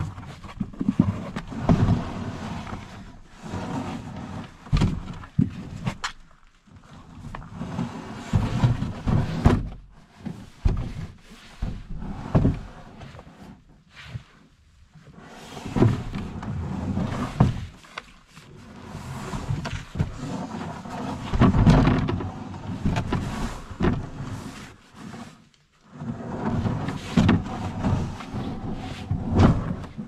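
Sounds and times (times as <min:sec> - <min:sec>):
canoe hull scraping over ground: 0:00.0 - 0:06.1, 0:06.7 - 0:30.0
canoe knocking over roots: 0:21.0 - 0:24.2.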